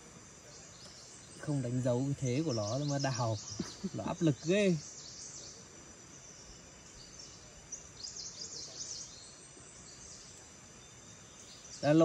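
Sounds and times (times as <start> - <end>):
bird chirping: 0.0 - 12.0
high insect drone: 0.0 - 12.0.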